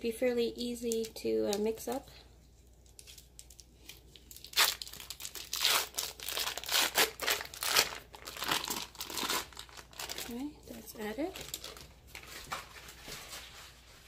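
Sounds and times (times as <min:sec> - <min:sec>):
foil wrapper crinkling: 0:02.6 - 0:14.0.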